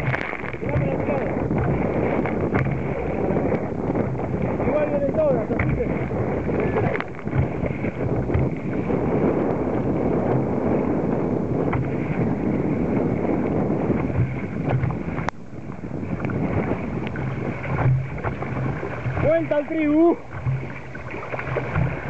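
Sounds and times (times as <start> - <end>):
water rushing and sloshing: 0.0 - 22.0
wind buffeting microphone: 0.0 - 22.0.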